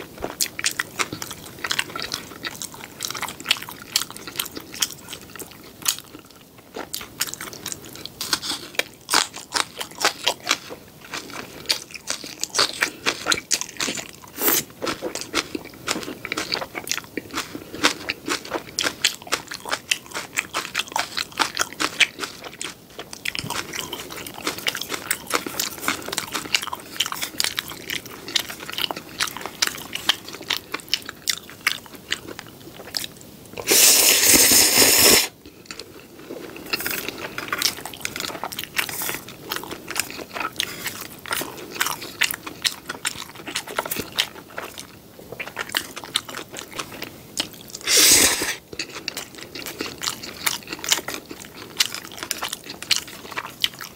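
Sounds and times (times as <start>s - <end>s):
wet chewing and mouth clicks: 0.1s - 53.9s
noodle slurping: 33.6s - 35.3s, 47.8s - 48.6s.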